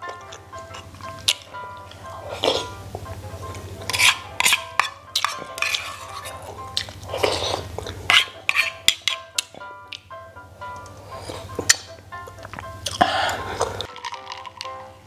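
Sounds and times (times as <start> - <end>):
soft background music: 0.0 - 15.0
spoon clinking against metal bowl: 3.8 - 6.9.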